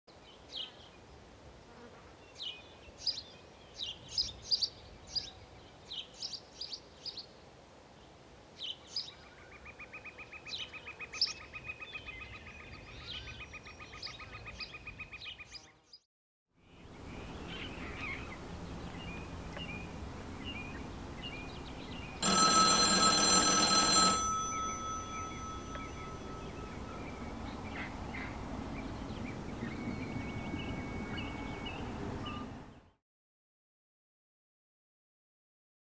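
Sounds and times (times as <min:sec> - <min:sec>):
payphone ringing: 0:22.2 - 0:27.4.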